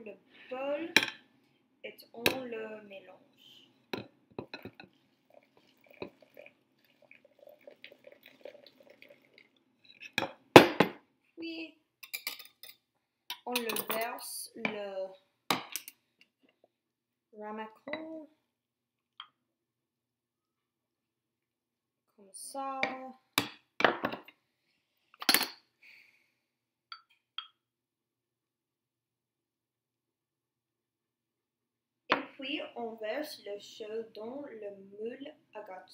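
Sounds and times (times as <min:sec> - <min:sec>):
cream trickling into bowl: 0:04.8 - 0:10.0.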